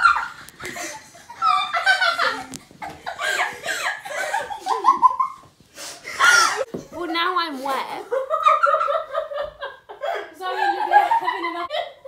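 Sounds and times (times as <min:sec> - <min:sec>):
girls laughing loudly: 0:00.0 - 0:06.7, 0:08.1 - 0:12.0
girls talking: 0:06.4 - 0:08.3, 0:10.3 - 0:11.8.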